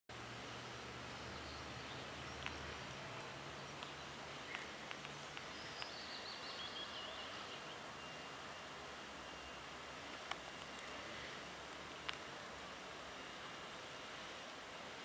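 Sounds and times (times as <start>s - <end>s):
outdoor background hiss: 0.1s - 15.0s
faint clicks: 2.4s - 6.0s, 10.1s - 12.4s
small bird twittering: 3.7s - 8.4s.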